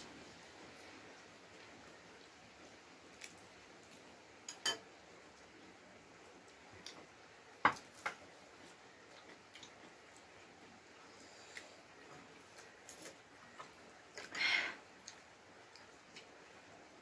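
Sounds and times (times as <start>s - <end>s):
cutlery clinking on crockery: 4.5s - 4.9s.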